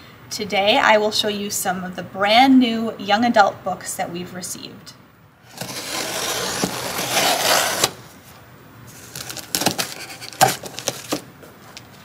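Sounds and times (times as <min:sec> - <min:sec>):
scissor blade slitting packing tape: 0:05.5 - 0:08.0, 0:09.0 - 0:11.2.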